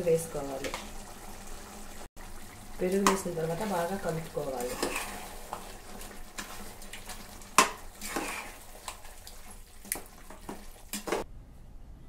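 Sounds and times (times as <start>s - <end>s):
metal spatula scraping pot: 3.0s - 11.2s.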